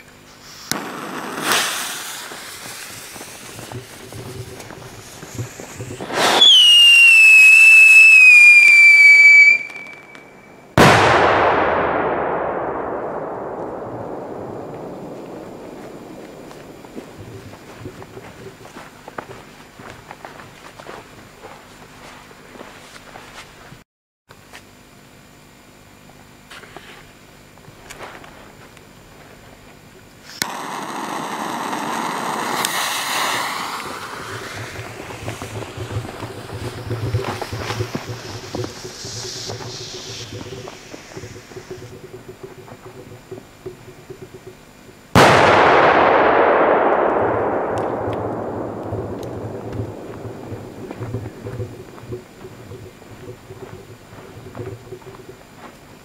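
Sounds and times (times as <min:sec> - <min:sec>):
firework whistle: 0:00.0 - 0:11.9, 0:30.3 - 0:44.5, 0:45.1 - 0:55.2
firework bang with echo: 0:00.7 - 0:08.3, 0:09.4 - 0:18.0, 0:30.4 - 0:44.5, 0:45.1 - 0:52.8.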